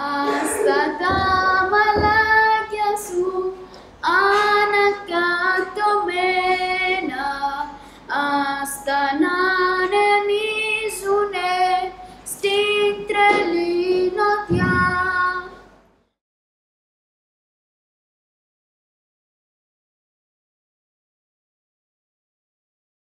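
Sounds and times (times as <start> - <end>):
boy singing: 0.0 - 15.7.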